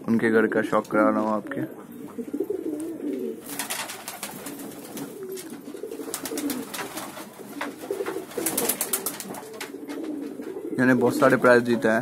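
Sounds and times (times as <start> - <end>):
pigeons cooing: 0.2 - 12.0
wings fluttering: 2.2 - 10.7.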